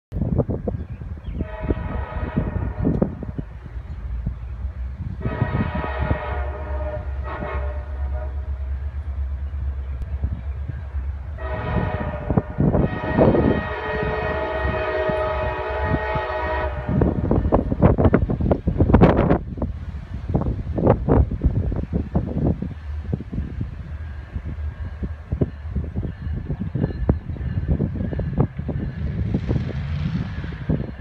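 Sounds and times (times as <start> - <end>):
wind buffeting microphone: 0.1 - 31.0
locomotive air horn blasts: 1.4 - 3.3, 5.2 - 8.8, 11.4 - 17.5.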